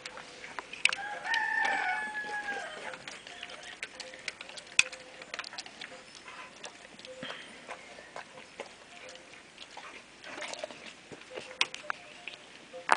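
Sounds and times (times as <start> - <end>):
dog crunching dry food: 0.0 - 12.9.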